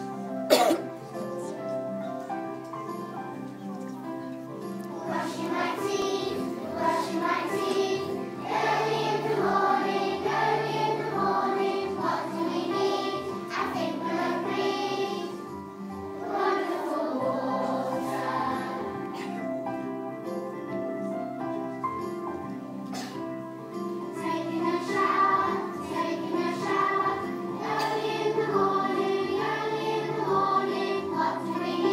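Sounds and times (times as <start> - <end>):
instrumental backing music: 0.0 - 31.9
children singing in unison: 4.9 - 19.4, 24.1 - 31.9.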